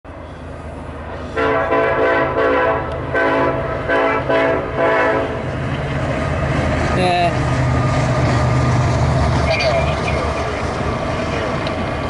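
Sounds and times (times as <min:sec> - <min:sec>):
train rumble: 0:00.1 - 0:12.0
locomotive air horn blasts: 0:01.4 - 0:05.4.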